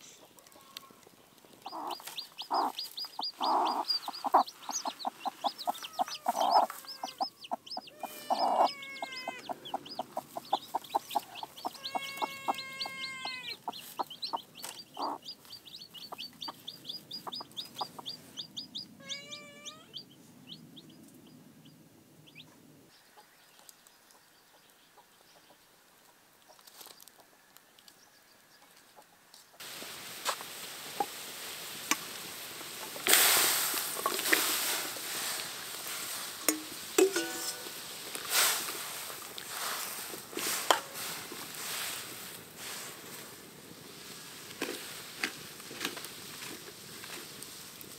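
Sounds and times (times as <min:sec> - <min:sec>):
chickens clucking: 0:00.0 - 0:21.4, 0:30.3 - 0:38.3.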